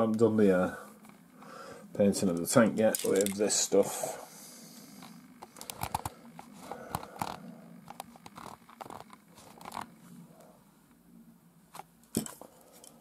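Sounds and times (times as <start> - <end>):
faint low hum: 0.0 - 13.0
small objects clicking and tapping: 2.4 - 3.5.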